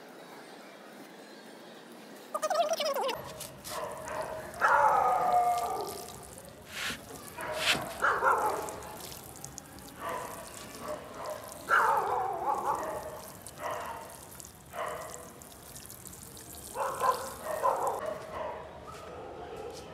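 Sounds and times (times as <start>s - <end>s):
water pattering onto soil: 3.1s - 18.1s
dog howling: 4.1s - 6.2s.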